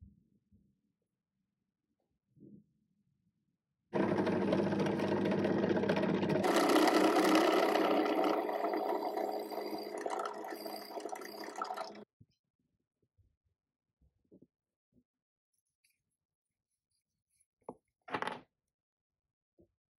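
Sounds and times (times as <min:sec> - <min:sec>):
drill press boring into wood: 0:04.0 - 0:12.0.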